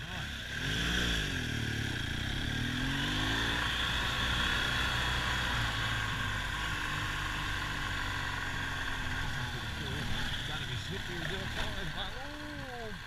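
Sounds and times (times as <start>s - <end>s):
motorcycle engine accelerating: 0.0s - 13.0s.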